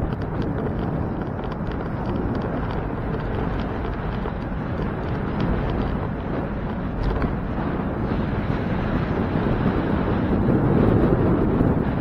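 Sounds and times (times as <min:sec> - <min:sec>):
wind rushing over microphone: 0:00.0 - 0:12.0.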